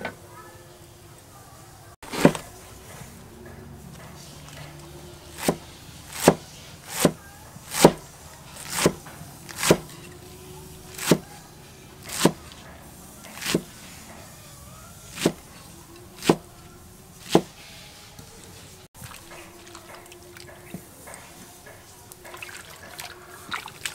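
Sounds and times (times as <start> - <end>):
cleaver chopping cabbage on wood: 2.0 - 2.6, 4.0 - 10.2, 10.9 - 11.4, 12.0 - 12.6, 13.2 - 13.8, 15.1 - 16.6, 17.2 - 17.6.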